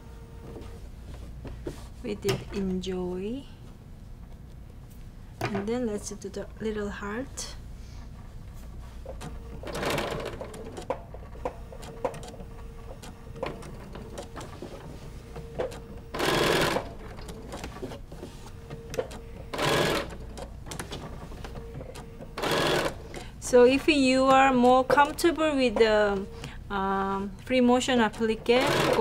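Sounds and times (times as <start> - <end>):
sewing machine motor humming: 9.2 - 14.8, 15.4 - 17.9, 18.5 - 21.0, 21.6 - 23.2, 28.1 - 29.0.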